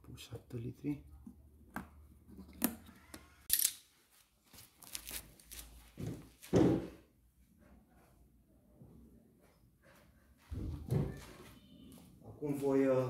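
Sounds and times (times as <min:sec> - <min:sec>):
plastic rustling: 0:04.4 - 0:06.0.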